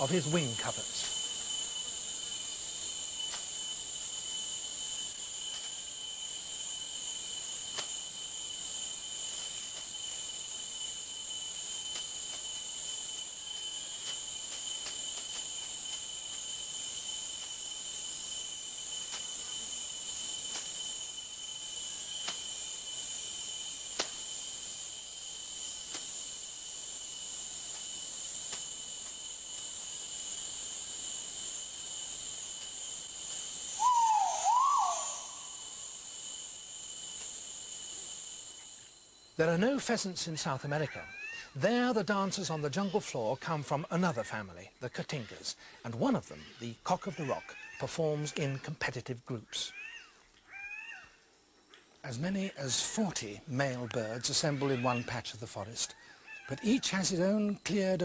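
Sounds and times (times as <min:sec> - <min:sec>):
insects droning: 0:00.0 - 0:58.0
faint ticks: 0:23.9 - 0:24.3, 0:25.8 - 0:26.1, 0:50.2 - 0:52.0
swooping animal call: 0:33.8 - 0:35.8, 0:49.7 - 0:51.2.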